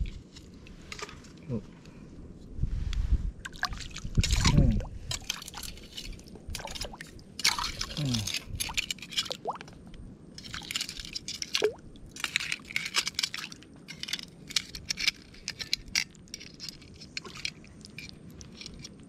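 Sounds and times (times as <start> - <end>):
tongs squishing in wet sand: 3.5 - 9.7, 10.4 - 19.0.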